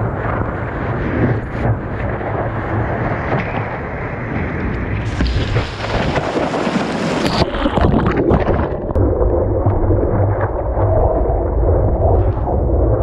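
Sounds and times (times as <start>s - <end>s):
wind buffeting microphone: 0.0s - 13.0s
whitewater rushing over paddleboard: 5.0s - 8.9s.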